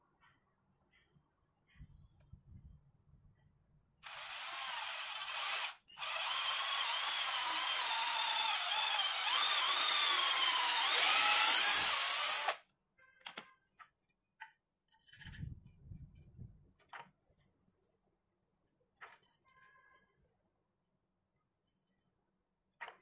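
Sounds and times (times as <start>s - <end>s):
cordless drill boring through wood: 4.0s - 12.6s.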